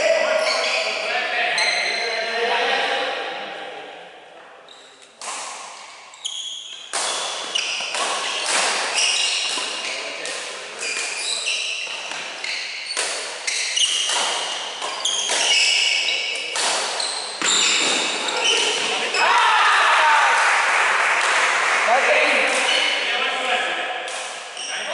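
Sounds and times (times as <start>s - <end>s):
rackets hitting shuttlecock: 5.1s - 6.1s, 6.7s - 11.2s, 11.9s - 19.2s, 24.0s - 24.6s
shoes squeaking on wooden floor: 5.8s - 10.2s, 10.8s - 19.2s, 24.5s - 24.9s.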